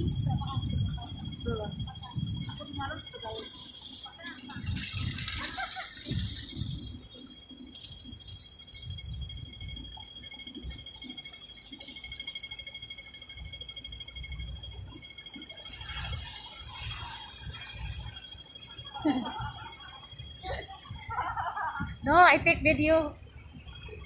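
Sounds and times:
crossing signal ticking rapidly: 0.0 - 24.0
traffic noise: 0.0 - 24.0.

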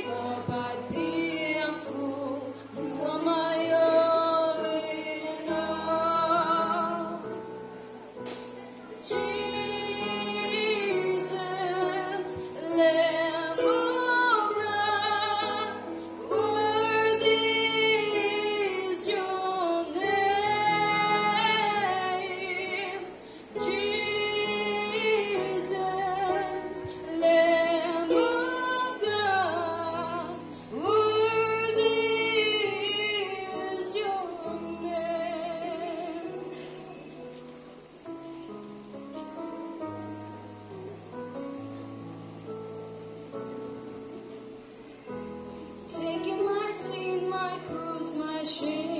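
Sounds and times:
woman singing worship song: 0.0 - 7.5, 8.9 - 37.3, 45.8 - 48.9.

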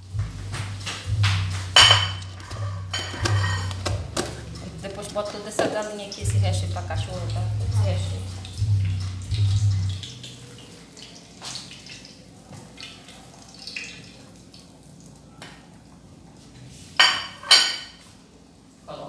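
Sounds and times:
fork and dishes clinking: 1.8 - 5.8.

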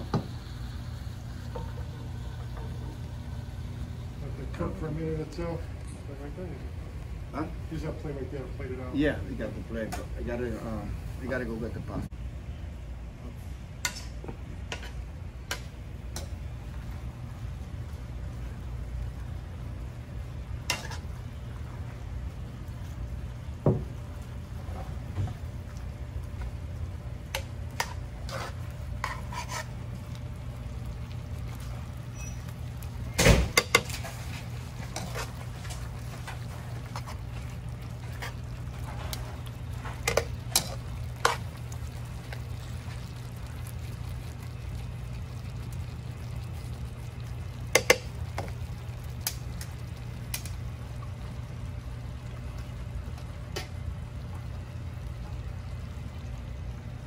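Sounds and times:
metal tongs scraping skillet: 27.8 - 29.7, 39.9 - 41.4.

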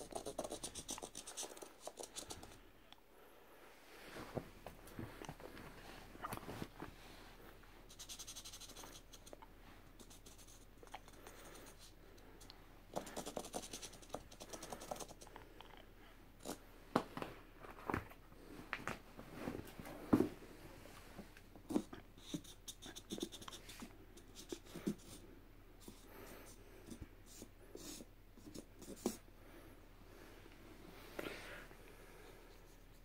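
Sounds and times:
marker pen scribbling: 0.0 - 2.6, 7.9 - 9.3, 12.9 - 15.3, 21.7 - 25.2, 25.8 - 29.2.

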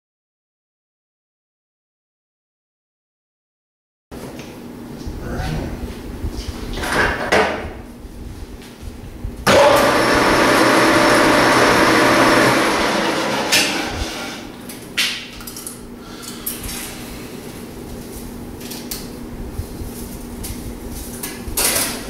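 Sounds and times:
lathe running with rushing noise: 9.5 - 14.6.

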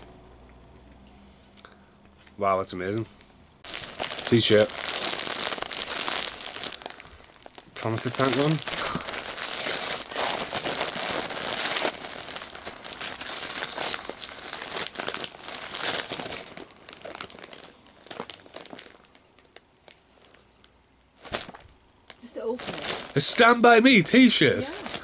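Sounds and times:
wrapping paper tearing and crumpling: 3.6 - 20.4, 21.2 - 23.6, 24.6 - 25.0.

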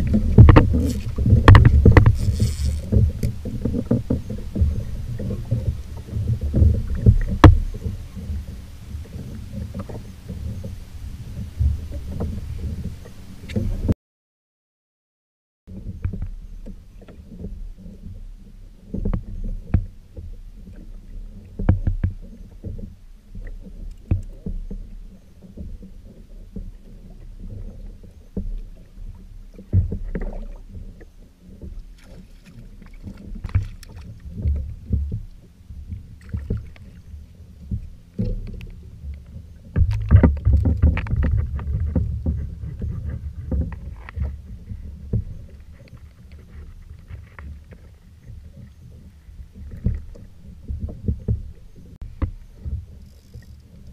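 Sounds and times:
knocks and bumps on hull: 0.0 - 10.8, 18.9 - 24.9, 25.5 - 37.0, 37.6 - 53.0
water lapping against kayak hull: 0.0 - 13.9, 15.7 - 53.9
low rumble: 32.7 - 53.9.

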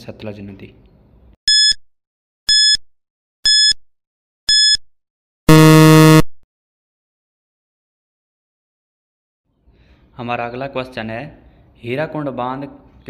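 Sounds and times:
short high beeps: 1.5 - 1.8, 2.5 - 2.8, 3.5 - 3.8, 4.5 - 4.8, 5.5 - 6.3
long low buzz: 5.5 - 6.4.

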